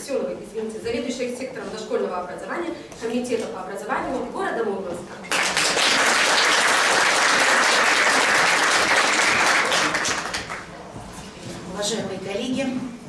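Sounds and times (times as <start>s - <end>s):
audience applauding: 5.2s - 10.7s
hands clapping close to microphone: 5.2s - 10.7s.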